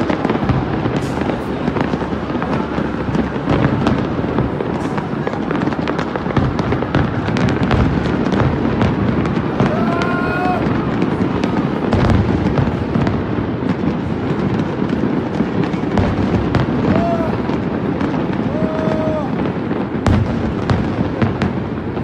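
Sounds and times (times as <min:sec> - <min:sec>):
fireworks booming: 0:00.0 - 0:22.0
fireworks sharp cracks: 0:00.0 - 0:22.0.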